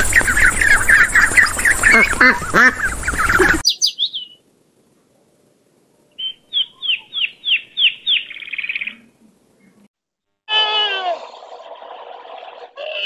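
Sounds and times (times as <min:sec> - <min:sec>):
songbird singing: 0:00.0 - 0:04.5, 0:06.0 - 0:09.9.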